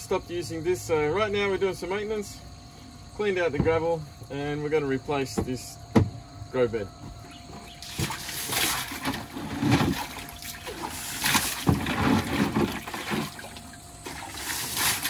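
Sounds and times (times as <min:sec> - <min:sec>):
muddy water sloshing and splashing: 0:07.2 - 0:15.0.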